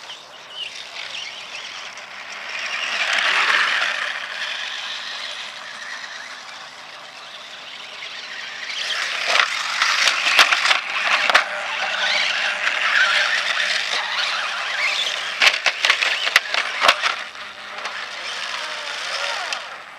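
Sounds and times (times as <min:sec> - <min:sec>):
rc motorcycle motor whining: 0:00.0 - 0:19.9
knocks of rc motorcycle bumping: 0:15.4 - 0:17.2.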